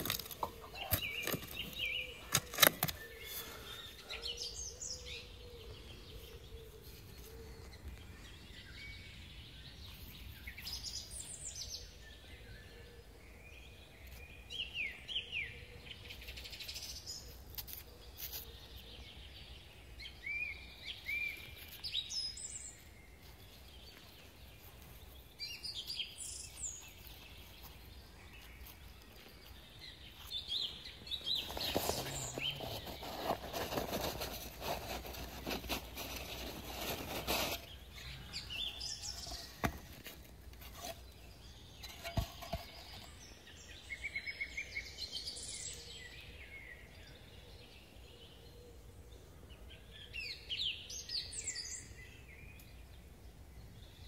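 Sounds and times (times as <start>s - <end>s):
spade striking soil: 0.0s - 3.0s
faint outdoor background noise: 0.0s - 54.0s
songbirds chirping: 0.0s - 54.0s.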